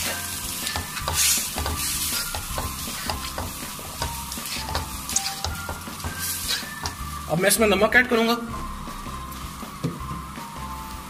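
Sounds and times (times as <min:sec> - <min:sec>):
macaroni sizzling in a pan: 0:00.0 - 0:07.4
spatula scraping and clicking: 0:00.6 - 0:07.0.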